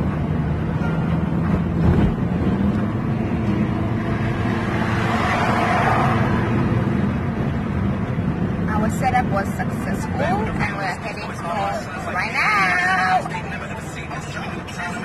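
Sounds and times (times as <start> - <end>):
road and wind noise in car: 0.0 - 15.0.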